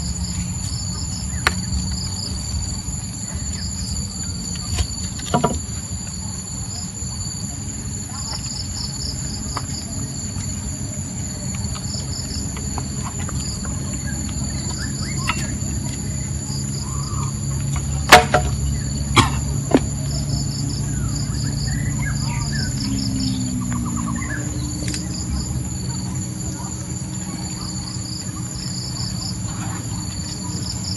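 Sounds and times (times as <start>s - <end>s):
insects trilling: 0.0s - 30.9s
sharp knocks: 5.3s - 5.7s.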